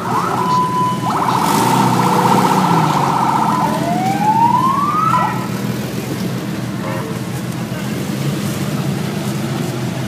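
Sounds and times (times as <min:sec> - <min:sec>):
electronic siren cycling tones: 0:00.0 - 0:05.5.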